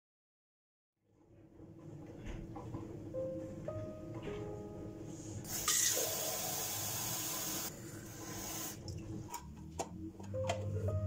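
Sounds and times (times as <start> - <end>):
water running from tap: 5.5 - 9.0.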